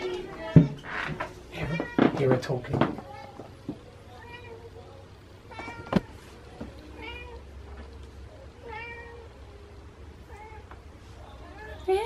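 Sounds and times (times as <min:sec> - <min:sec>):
cat meowing: 0:06.9 - 0:07.4, 0:08.6 - 0:09.4.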